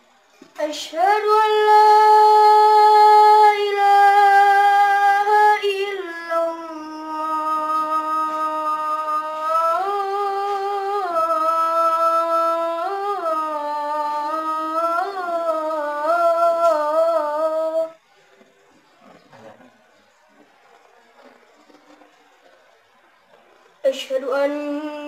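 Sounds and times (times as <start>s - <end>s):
boy chanting call to prayer: 0.6s - 18.0s, 23.8s - 25.0s.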